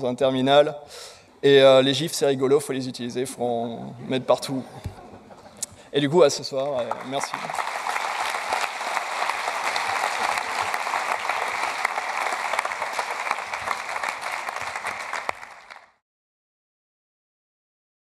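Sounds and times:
audience applauding: 0:06.7 - 0:16.0.

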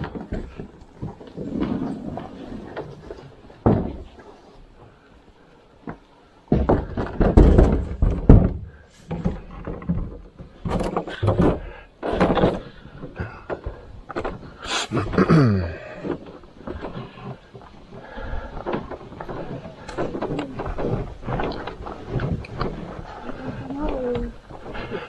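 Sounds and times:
canoe hull knocks and bumps: 0:00.0 - 0:04.3, 0:05.8 - 0:25.0.

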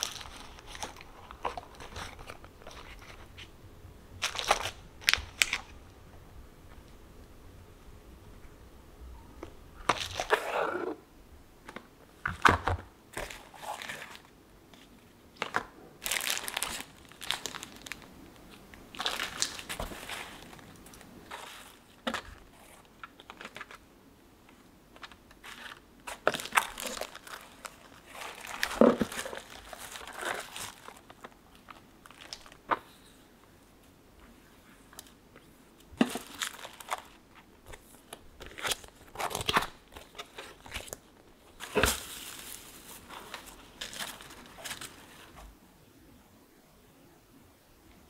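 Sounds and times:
plastic packaging crinkling: 0:00.0 - 0:03.5, 0:04.2 - 0:05.8, 0:09.8 - 0:10.6, 0:12.2 - 0:23.8, 0:24.5 - 0:33.0, 0:35.9 - 0:45.4.

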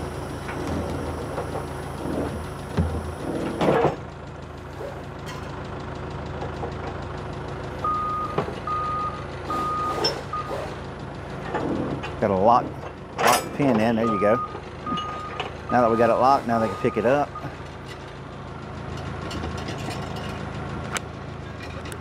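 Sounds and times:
engine idling: 0:00.0 - 0:22.0
reversing alarm beeps: 0:07.8 - 0:10.6, 0:14.0 - 0:16.0, 0:16.7 - 0:17.6
metal clanks: 0:11.4 - 0:15.6, 0:18.9 - 0:20.5, 0:21.4 - 0:22.0.

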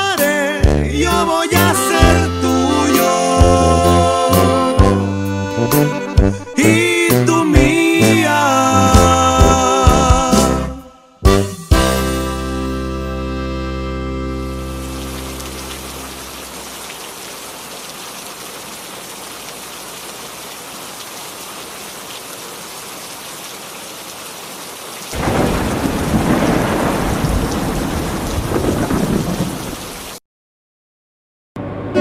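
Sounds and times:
song: 0:00.0 - 0:16.4, 0:31.6 - 0:32.0
steady rain: 0:14.6 - 0:30.2
thunder rumble: 0:25.2 - 0:30.1.

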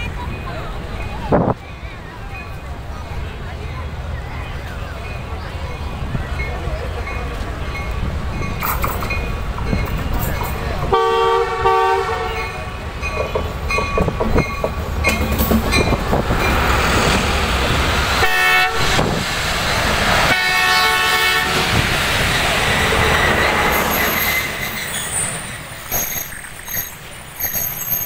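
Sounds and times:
locomotive engine rumbling: 0:00.0 - 0:28.0
rail noise of rolling coaches: 0:00.0 - 0:28.0
train horn blasts: 0:10.9 - 0:12.8, 0:18.2 - 0:19.2, 0:20.2 - 0:21.8
train wheels squealing: 0:22.2 - 0:28.0.

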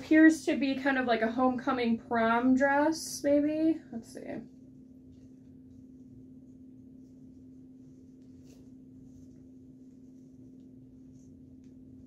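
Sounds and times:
steady low hum: 0:00.0 - 0:12.0
fabric rustling: 0:06.8 - 0:12.0.

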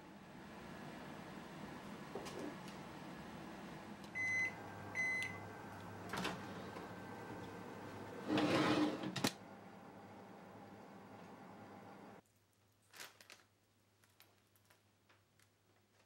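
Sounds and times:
oven electronic beeps: 0:04.1 - 0:08.3
metal baking pan sliding on rack: 0:08.2 - 0:09.2.

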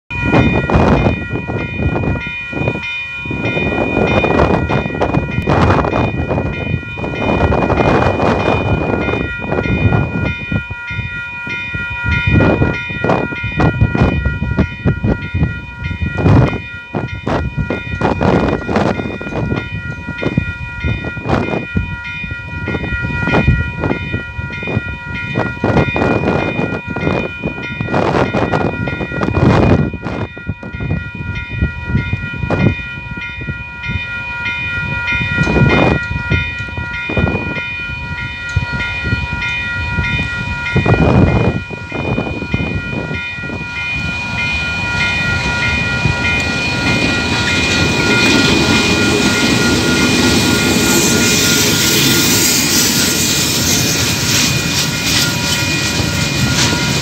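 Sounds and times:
level crossing warning bell ringing: 0:00.1 - 0:57.0
uneven rushing noise: 0:40.1 - 0:57.0.

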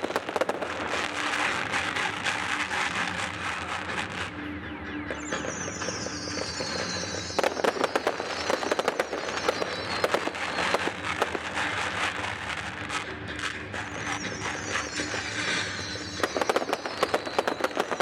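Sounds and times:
firework bangs and crackles: 0:00.0 - 0:04.4, 0:05.0 - 0:18.0
firework whistle falling: 0:05.0 - 0:11.5, 0:13.8 - 0:18.0.

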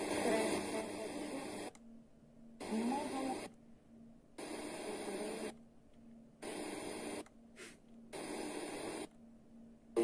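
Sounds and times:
faint steady hum: 0:00.0 - 0:10.0
radio static bursts: 0:04.4 - 0:05.5, 0:06.4 - 0:07.2, 0:08.1 - 0:09.1.

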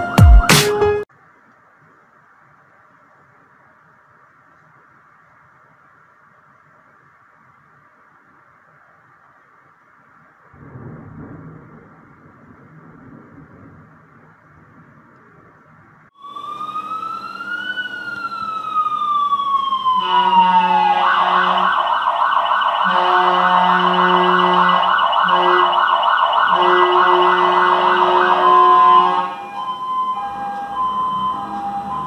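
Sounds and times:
fire engine siren: 0:16.2 - 0:32.0
air horn blasts: 0:20.0 - 0:21.9, 0:22.8 - 0:29.5.

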